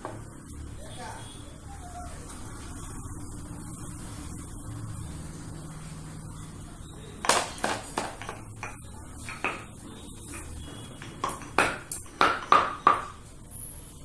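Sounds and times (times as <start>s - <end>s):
metal cups clinking: 7.2s - 13.2s.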